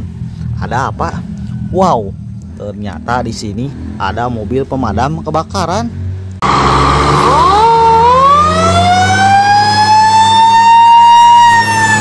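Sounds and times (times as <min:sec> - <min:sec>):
fire engine siren wailing: 0:06.4 - 0:12.0.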